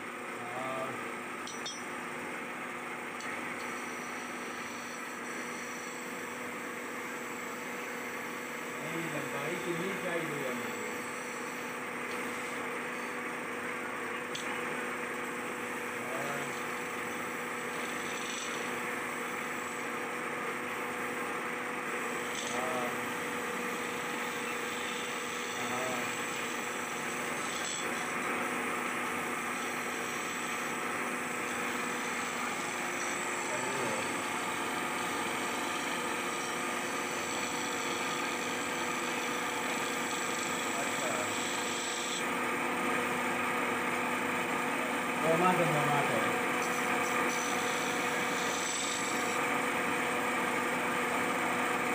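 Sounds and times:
wood lathe humming: 1.9s - 51.9s
chisel scraping spinning wood: 15.0s - 44.0s, 46.3s - 51.9s.

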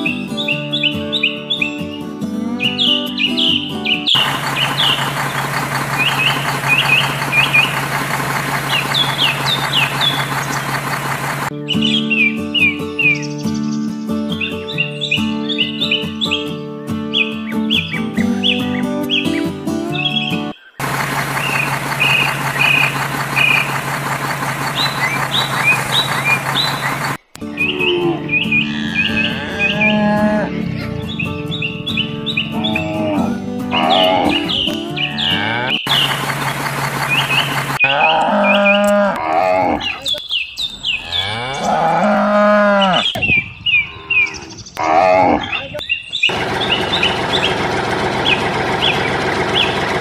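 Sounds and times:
birds chirping: 0.0s - 50.0s
truck engine running: 4.2s - 11.5s, 20.8s - 27.3s, 35.8s - 37.8s, 46.3s - 50.0s
vehicle motor humming: 4.2s - 11.5s, 20.8s - 27.3s, 35.8s - 37.8s, 46.3s - 50.0s.

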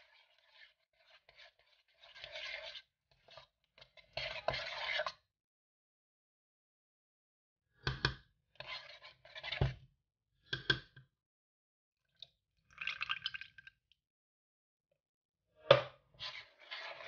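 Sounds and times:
metal spoon scraping a pot: 0.0s - 5.2s, 8.6s - 9.8s, 16.2s - 17.0s
water pouring into batter: 12.7s - 13.8s.

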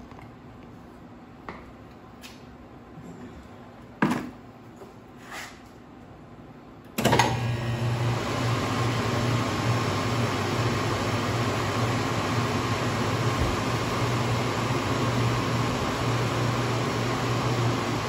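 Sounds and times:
soft serve machine humming: 6.8s - 18.0s.

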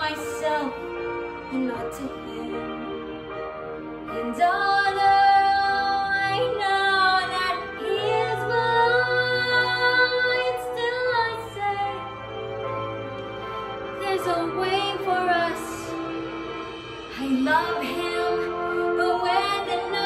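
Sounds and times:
woman singing a slow ballad: 0.0s - 0.9s, 1.5s - 3.0s, 4.1s - 12.0s, 14.0s - 16.0s, 17.1s - 20.0s
soft instrumental backing track: 0.0s - 20.0s.

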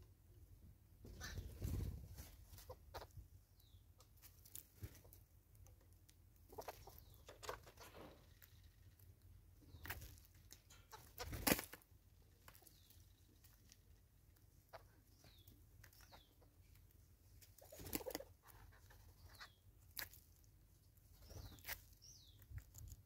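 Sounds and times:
birds clucking: 1.1s - 3.2s, 6.4s - 9.0s, 9.6s - 19.7s.

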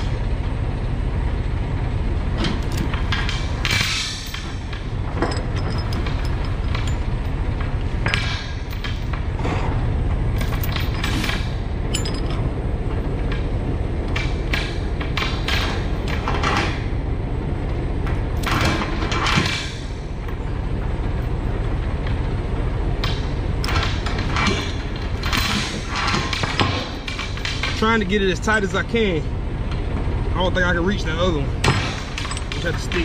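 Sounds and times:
low steady rumble: 0.0s - 33.0s
steel chain clanking and rattling: 2.4s - 9.3s, 10.4s - 13.5s, 23.0s - 28.8s, 31.0s - 33.0s.

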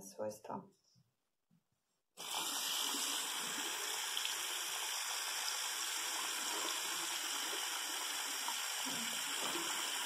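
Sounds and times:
tap water running: 2.2s - 10.0s.

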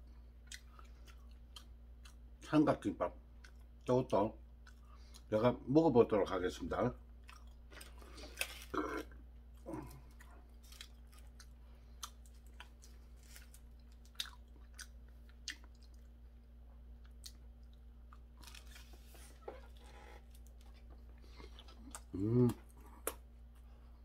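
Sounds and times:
chewing: 7.2s - 16.2s
dried seaweed crackling: 12.2s - 14.3s.

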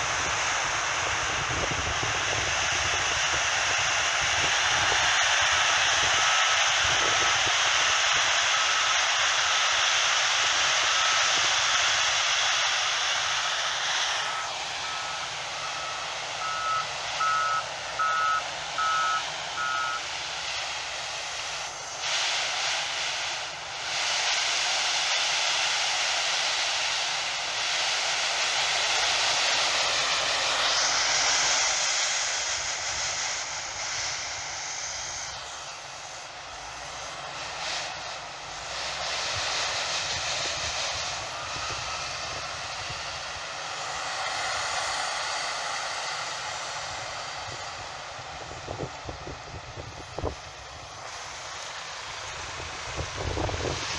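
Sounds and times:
diesel engines rushing: 0.0s - 53.9s
reversing alarm beeping: 14.2s - 20.1s, 41.2s - 42.1s.

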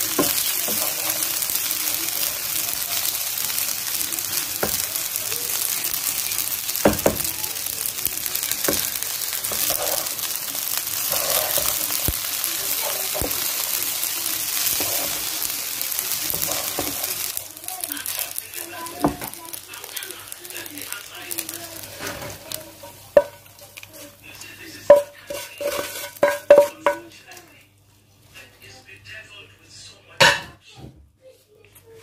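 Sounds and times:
wooden spoon stirring: 0.0s - 27.4s
pasta sizzling in a frying pan: 0.0s - 28.7s
spoon knocking against pan: 24.9s - 27.0s.

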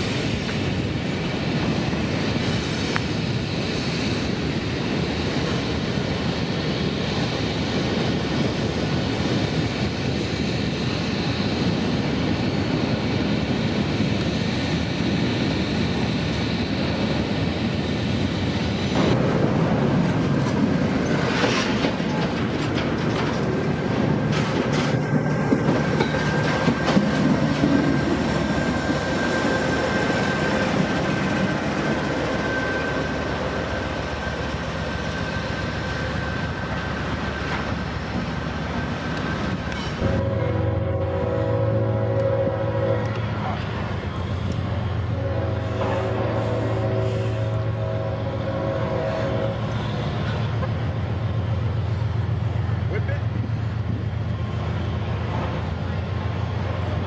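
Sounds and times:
train wheels clattering on rails: 0.0s - 40.6s
diesel locomotive rolling by: 0.0s - 57.0s.

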